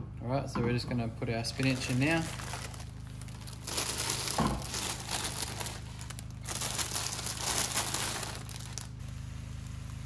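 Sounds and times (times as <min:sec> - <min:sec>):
plastic bag crinkling: 0:01.4 - 0:09.0.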